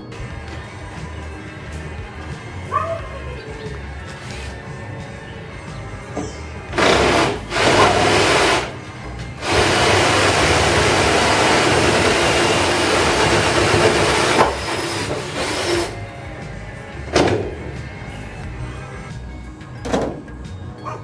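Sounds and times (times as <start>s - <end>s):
reciprocating saw cutting metal: 0.0s - 19.1s.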